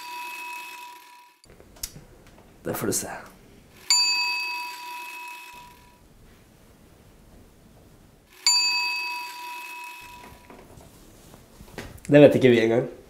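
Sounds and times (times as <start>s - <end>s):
bell ding: 3.8s - 5.9s, 8.4s - 10.5s.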